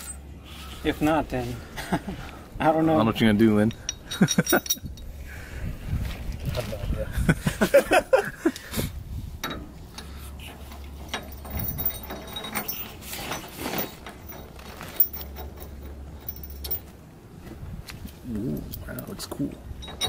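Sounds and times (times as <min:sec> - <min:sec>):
metallic clicks and clinks of bolts: 0:03.7 - 0:05.1, 0:10.8 - 0:16.9, 0:19.8 - 0:20.0.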